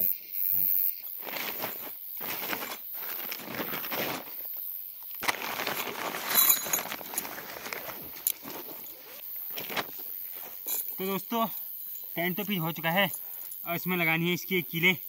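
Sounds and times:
fabric rustling: 5.2s - 10.0s
light clicks and clinks: 6.3s - 7.3s, 10.6s - 11.0s.

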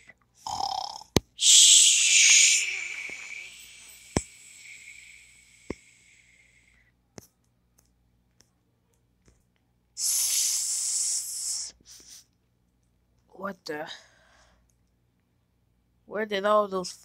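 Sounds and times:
loud hissing rush: 1.4s - 6.6s, 10.0s - 11.7s.

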